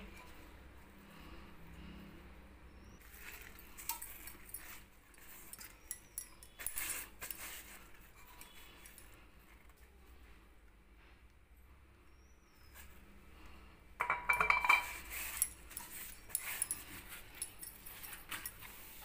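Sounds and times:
glass bottle and strainer clinking: 0:03.1 - 0:07.5, 0:14.0 - 0:19.0.

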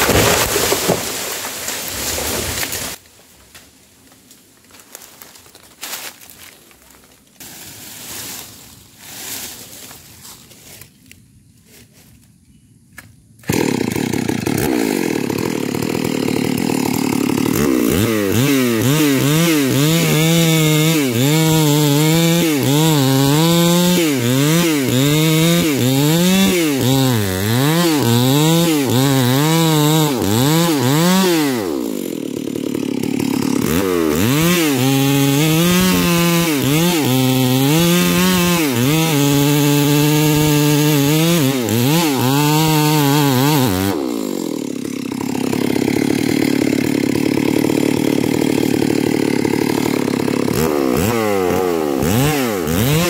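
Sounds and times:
chainsaw cutting tree trunk: 0:00.0 - 0:03.0, 0:13.0 - 0:53.0
chainsaw idling: 0:13.4 - 0:53.0.

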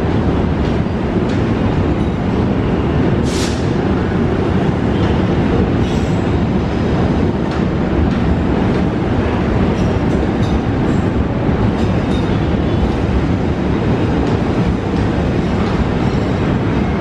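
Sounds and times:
freight train rumbling: 0:00.0 - 0:17.0.

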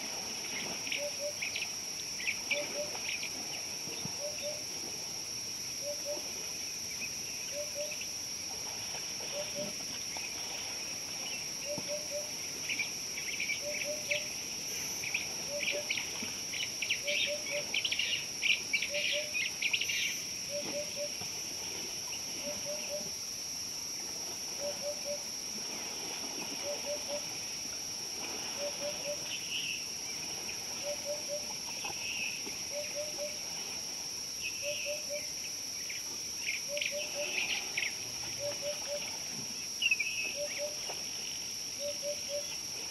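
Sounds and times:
high insect drone: 0:00.0 - 0:42.9
bird low repeating call: 0:13.6 - 0:14.3, 0:18.9 - 0:19.4, 0:20.5 - 0:21.2, 0:34.6 - 0:35.3.

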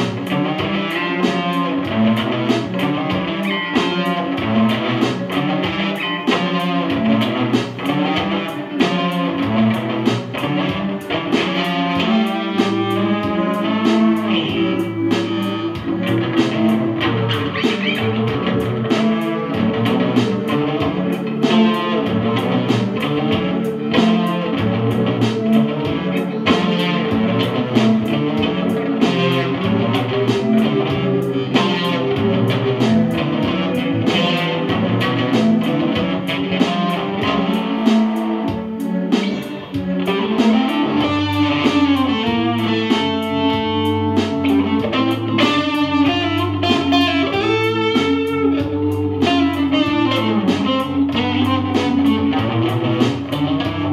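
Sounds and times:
electric guitar through amp: 0:00.0 - 0:53.9
electronic keyboard: 0:00.0 - 0:53.9.

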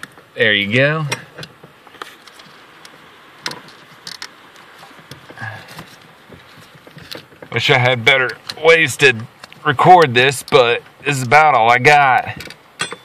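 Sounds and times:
light clicks and taps: 0:08.2 - 0:11.4.

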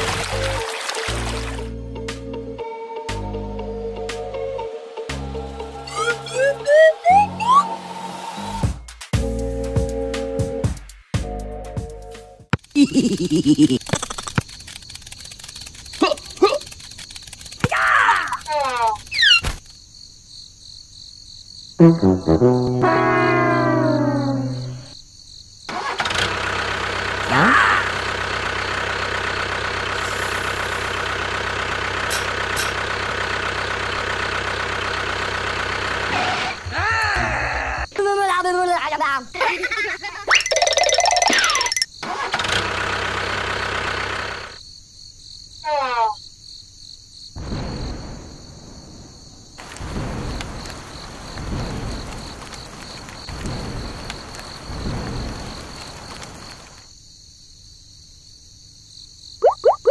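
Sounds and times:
cricket chirping: 0:12.6 - 0:25.9, 0:37.8 - 0:42.1, 0:44.4 - 0:59.9
short rising sound: 0:21.8 - 0:24.9
tractor engine idling: 0:27.9 - 0:36.4, 0:42.6 - 0:44.6
rain hissing: 0:29.8 - 0:33.0, 0:47.7 - 0:56.9
thunder rumbling: 0:47.4 - 0:56.7.

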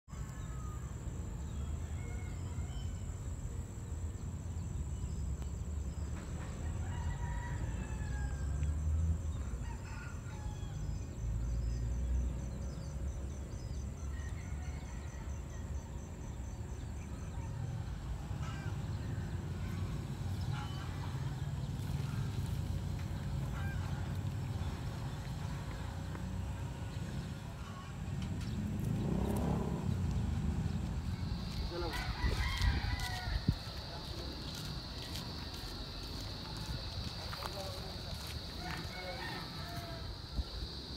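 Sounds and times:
rooster crowing: 0:06.6 - 0:08.6, 0:09.4 - 0:10.8, 0:14.2 - 0:15.6, 0:31.4 - 0:34.0, 0:38.3 - 0:40.8.

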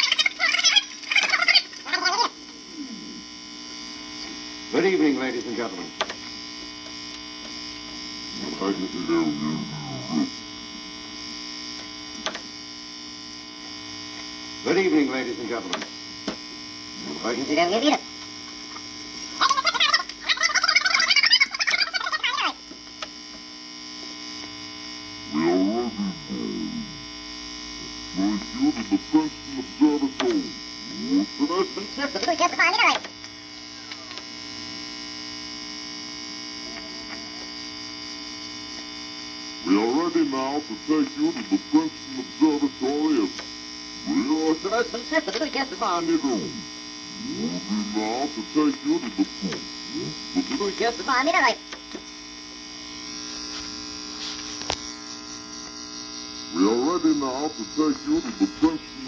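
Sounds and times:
warbling garbled voices from record: 0:00.0 - 0:06.2, 0:08.3 - 0:10.5, 0:14.6 - 0:16.0, 0:16.9 - 0:22.7, 0:25.2 - 0:27.2, 0:27.8 - 0:34.9, 0:36.5 - 0:37.6, 0:39.5 - 0:51.8, 0:56.3 - 0:59.0
steady mains hum: 0:00.0 - 0:59.0.

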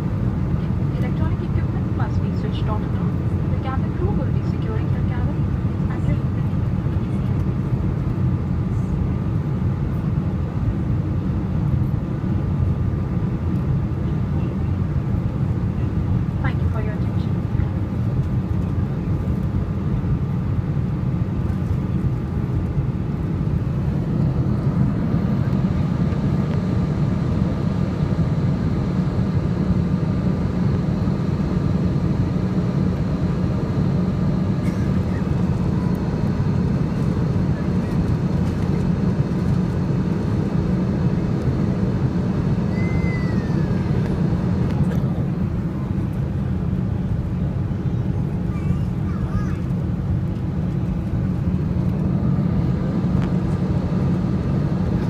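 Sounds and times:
airliner cabin rumble: 0:00.0 - 0:55.0.

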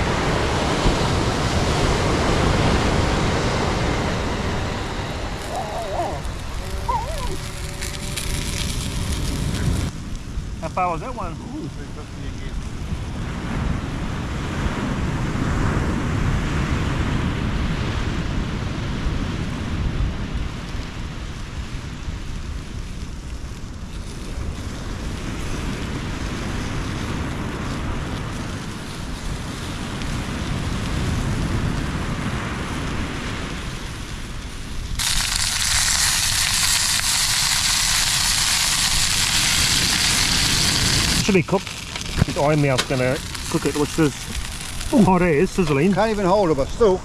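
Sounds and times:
surf on beach: 0:00.0 - 0:47.0
wind buffeting microphone: 0:00.0 - 0:47.0
sausages sizzling in a pan: 0:02.5 - 0:09.9, 0:34.6 - 0:46.2.

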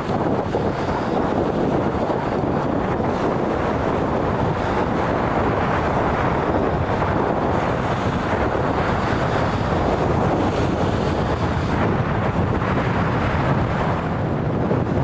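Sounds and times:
waves breaking on shore: 0:00.0 - 0:15.0
wind blowing across microphone: 0:00.0 - 0:15.0.

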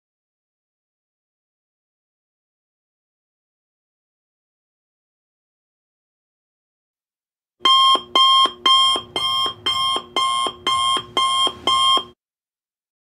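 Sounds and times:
alarm clock beeping: 0:07.6 - 0:12.2.

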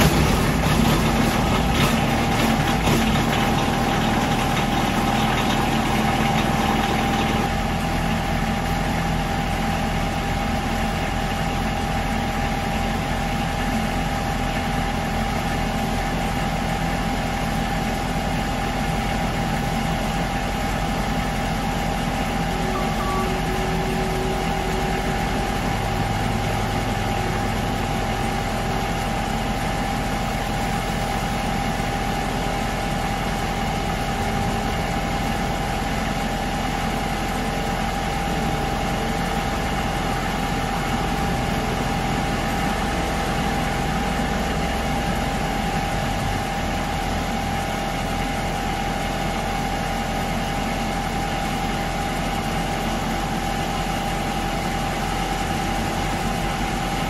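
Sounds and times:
diesel engines running: 0:00.0 - 0:57.0
constant high hum: 0:20.6 - 0:32.8.

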